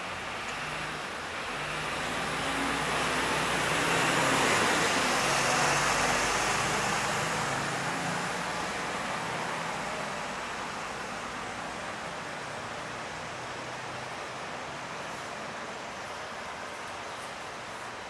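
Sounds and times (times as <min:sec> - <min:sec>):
vehicle driving past: 0:01.5 - 0:10.6.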